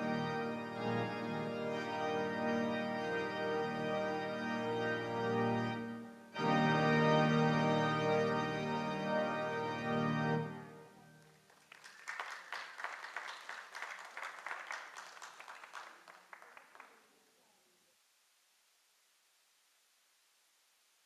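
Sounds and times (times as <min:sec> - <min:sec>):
organ chord: 0:00.0 - 0:11.4
congregation applauding: 0:11.1 - 0:17.2.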